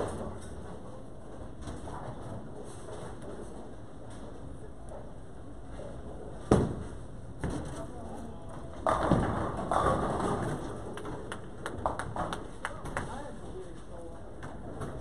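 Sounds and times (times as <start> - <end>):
bowling ball rolling: 8.6 - 12.6
bowling ball thud: 8.8 - 12.3
bowling pins crashing: 8.8 - 12.3.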